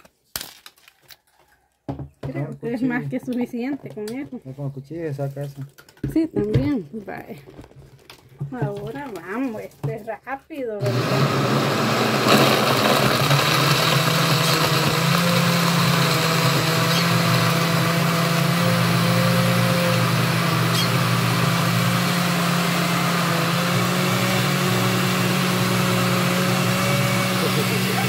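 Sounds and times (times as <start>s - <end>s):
blender running: 10.8s - 28.0s.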